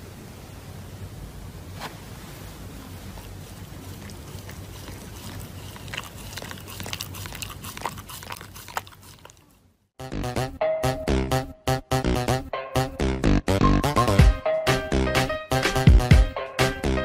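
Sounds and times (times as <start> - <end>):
steady low hiss: 0.0 - 5.7
dog chewing paper: 2.8 - 9.6.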